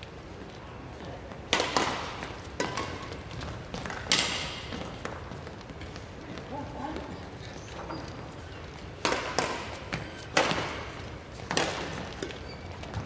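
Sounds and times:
rackets hitting shuttlecock: 1.4s - 5.8s, 8.8s - 13.0s.

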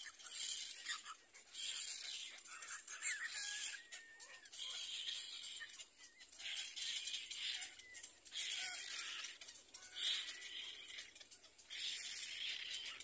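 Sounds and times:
chicks raspy begging calls: 0.8s - 11.2s.

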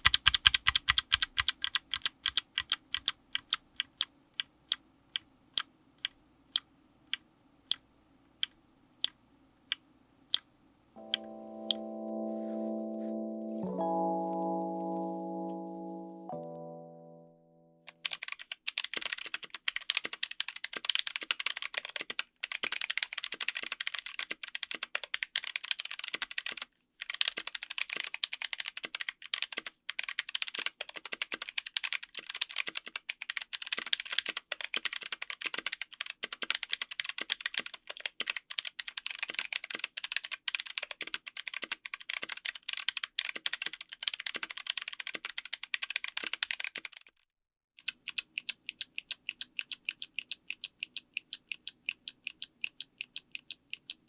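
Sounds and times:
fast typing on clicky keyboard: 0.0s - 4.1s, 17.9s - 47.2s, 47.8s - 54.0s.

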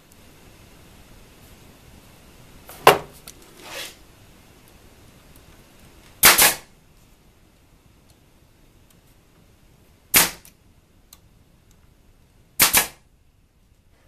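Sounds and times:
pneumatic nailer firing: 6.2s - 6.7s, 10.1s - 10.5s, 12.6s - 13.0s.

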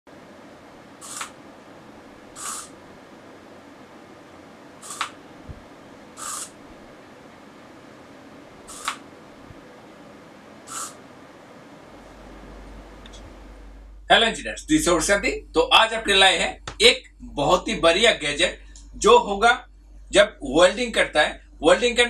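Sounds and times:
servo buzzing whirr: 1.0s - 1.4s, 2.3s - 2.8s, 4.8s - 5.2s, 6.1s - 6.6s, 8.6s - 9.0s, 10.6s - 11.0s
servo click: 1.0s - 1.4s, 4.8s - 5.2s, 8.7s - 9.0s.

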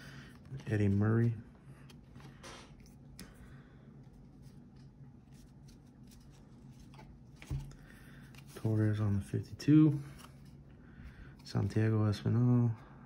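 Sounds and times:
cards rustling and flicking: 0.2s - 3.4s, 4.1s - 10.6s.

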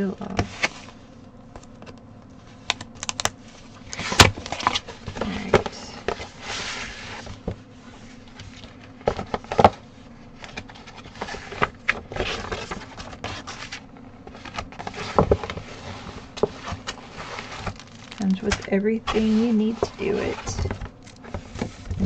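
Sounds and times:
paper and fabric rustling: 2.4s - 22.0s.

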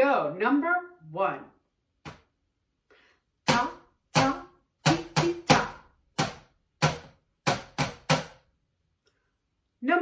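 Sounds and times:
drumsticks hitting plastic bucket: 3.5s - 8.5s.

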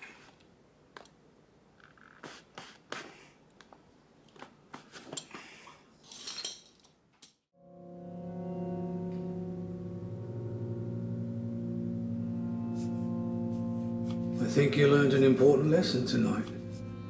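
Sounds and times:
low music tone: 7.6s - 17.0s.

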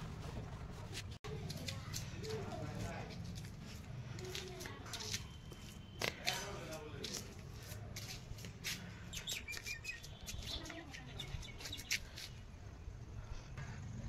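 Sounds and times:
bird chirps: 9.1s - 12.1s.

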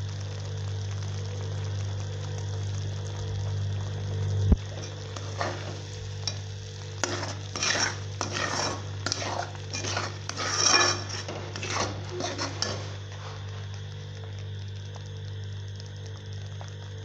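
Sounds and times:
low hum: 3.4s - 16.8s
metal spoon scraping pot: 4.6s - 13.4s.

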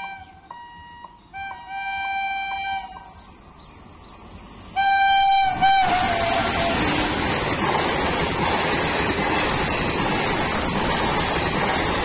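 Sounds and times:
train horn blasts: 0.0s - 3.3s, 4.7s - 7.2s
rumble of passing train: 0.0s - 12.0s.

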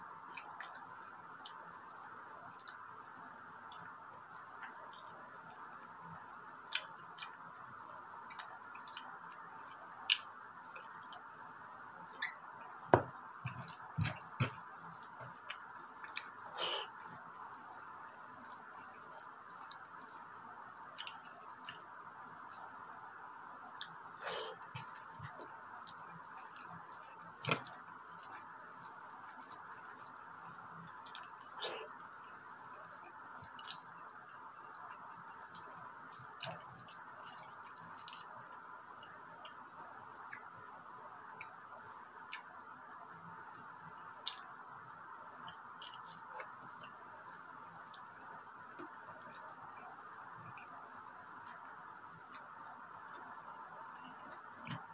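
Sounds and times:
steady background hiss: 0.0s - 54.9s
mouth smacks and chewing: 1.4s - 2.9s, 6.0s - 7.5s, 8.3s - 11.3s, 13.5s - 22.6s, 23.7s - 40.6s, 41.4s - 43.2s, 43.9s - 53.4s, 54.0s - 54.9s
fingers squishing through rice: 13.1s - 22.2s, 23.8s - 39.6s, 44.2s - 53.4s, 54.0s - 54.9s.

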